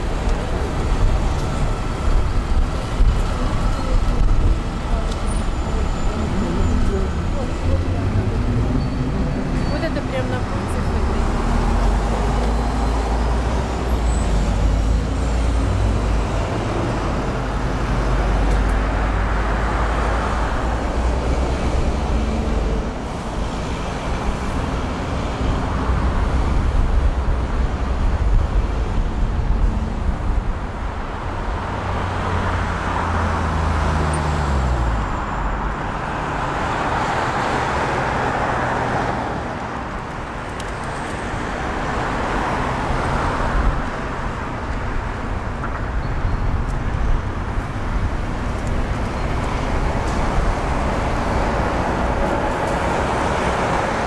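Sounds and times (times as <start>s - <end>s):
cars and buses passing: 0.0s - 54.0s
heavy engine rumble: 0.0s - 54.0s.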